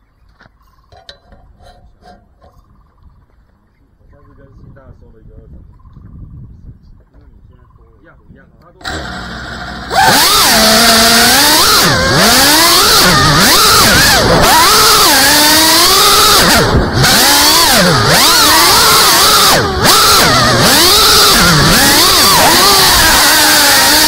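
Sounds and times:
quadcopter motors whining: 8.7 - 24.0.

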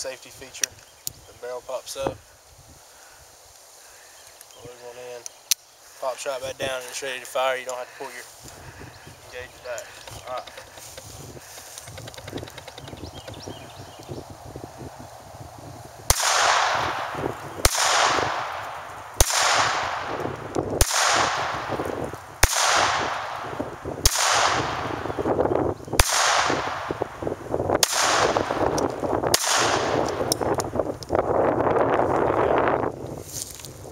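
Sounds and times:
pistol shots with echo: 16.1 - 25.2, 26.0 - 27.0, 27.8 - 30.4.

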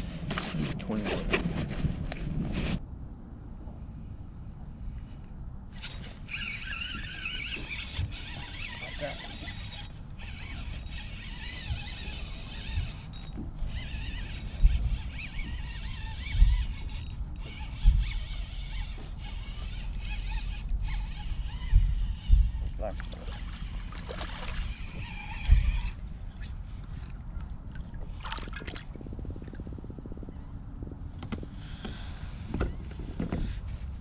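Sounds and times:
fishing reel whirring: 5.7 - 26.0
dull low thumps: 10.4 - 24.0.

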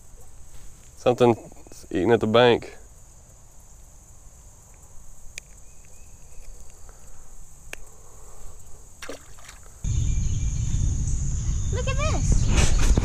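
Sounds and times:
insect chorus: 0.0 - 13.0
faint clicks: 4.7 - 7.9
light water sounds: 9.0 - 9.8.

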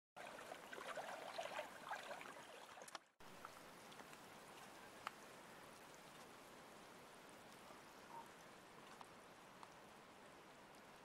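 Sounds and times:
water sloshing and splashing: 0.2 - 3.6
faint steady hiss: 3.2 - 11.0.

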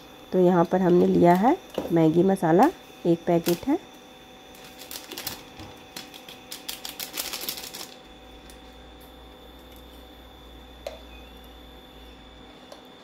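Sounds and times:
faint steady hum: 0.0 - 13.0
foil sachet crinkly clicks: 4.5 - 8.6.

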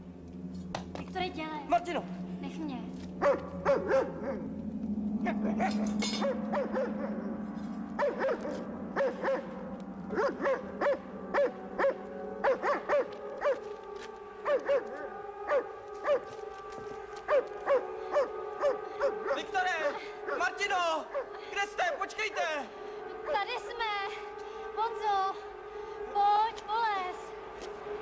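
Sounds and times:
low steady hum: 0.0 - 28.0
dog barking: 3.2 - 4.5, 5.5 - 7.3, 8.0 - 9.5, 10.1 - 13.6, 14.5 - 16.3, 17.3 - 19.4, 21.1 - 21.4.

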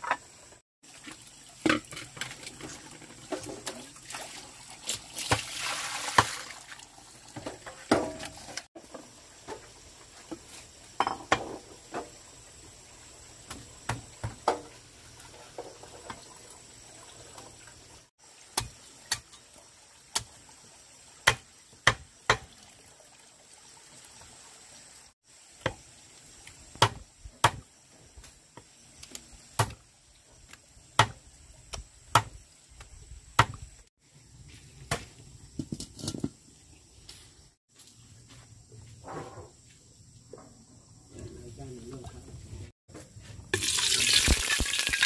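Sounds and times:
cleaver chopping on wood: 21.2 - 22.5, 26.8 - 27.7, 29.6 - 29.8, 31.0 - 32.4, 33.4 - 33.7.

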